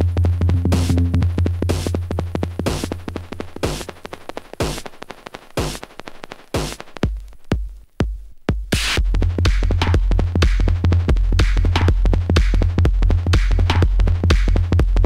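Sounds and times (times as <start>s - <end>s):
deep bass line: 0.0s - 2.4s
techno drum machine beat: 0.4s - 1.6s
bright noisy hit: 0.5s - 1.6s.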